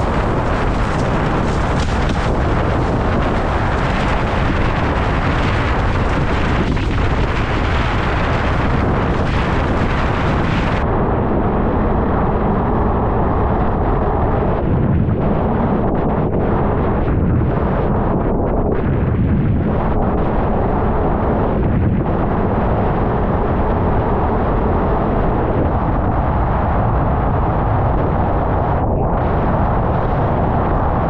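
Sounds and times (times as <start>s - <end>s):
water rushing and spraying: 0.0s - 10.8s
wind buffeting microphone: 0.0s - 31.0s.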